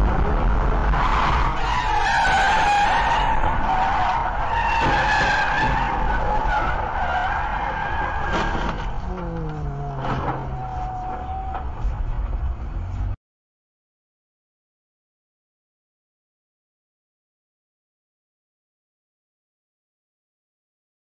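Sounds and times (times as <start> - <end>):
car tyres screeching: 0.0 - 13.1
road noise: 0.0 - 13.2.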